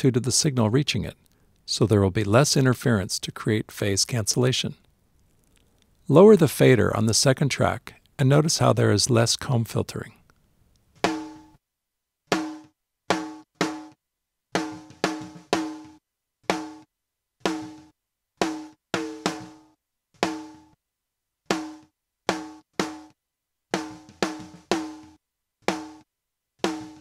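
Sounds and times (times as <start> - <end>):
snare drum strikes: 11.0 - 11.4, 12.3 - 14.0, 18.4 - 19.6, 25.7 - 26.0, 26.6 - 27.0.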